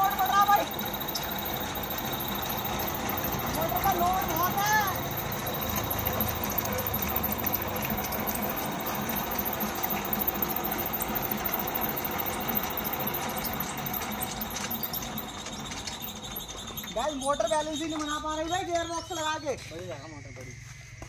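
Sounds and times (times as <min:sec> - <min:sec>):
electric motor running machinery: 0:00.0 - 0:20.4.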